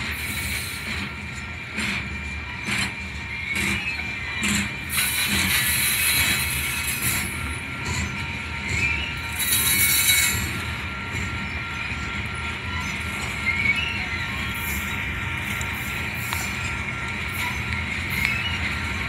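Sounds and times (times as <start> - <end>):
freight train rolling rumble: 0.0 - 19.0
train wheels squealing: 0.0 - 19.0.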